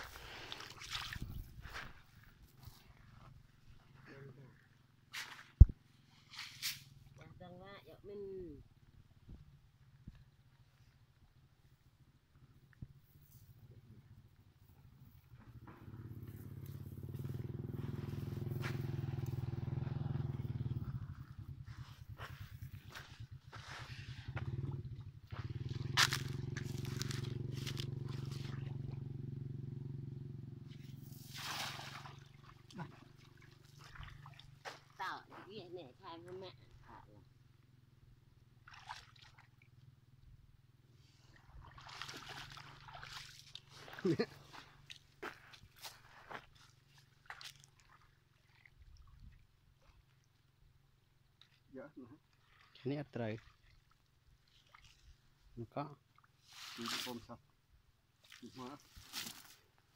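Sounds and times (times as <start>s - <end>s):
feet splashing through muddy water: 0.0s - 4.1s, 17.2s - 29.5s, 30.7s - 35.6s, 38.6s - 39.7s, 41.2s - 50.6s, 51.4s - 57.3s, 58.2s - 59.9s
small engine running: 15.3s - 35.0s.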